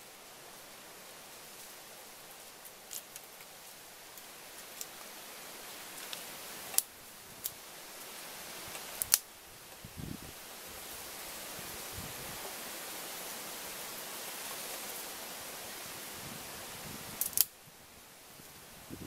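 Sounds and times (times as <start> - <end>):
steady hiss: 0.0 - 19.0
sticks clicking and knocking: 8.8 - 9.2.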